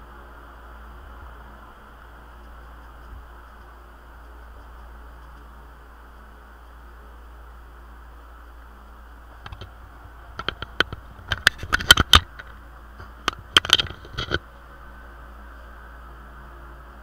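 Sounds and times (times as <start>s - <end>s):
steady low hum: 0.0s - 17.0s
objects clicking and knocking on desk: 9.4s - 14.4s.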